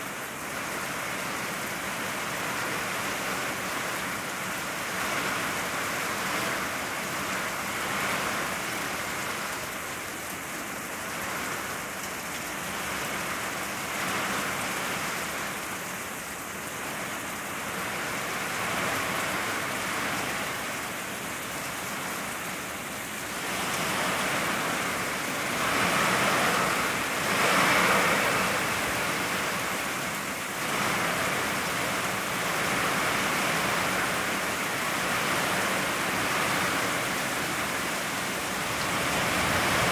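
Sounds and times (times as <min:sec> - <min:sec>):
heavy rain falling: 0:00.0 - 0:39.9.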